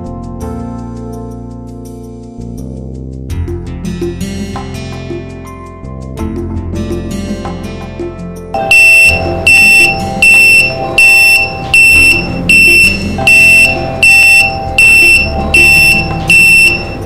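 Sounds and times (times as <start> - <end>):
high-pitched alarm beeping: 8.6 - 17.0.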